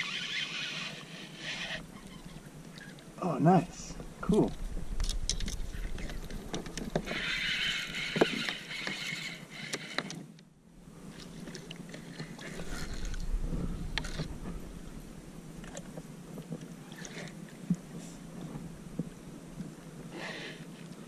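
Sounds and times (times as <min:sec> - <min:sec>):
fishing reel whirring: 0:00.0 - 0:03.0, 0:05.0 - 0:10.2, 0:11.5 - 0:15.0.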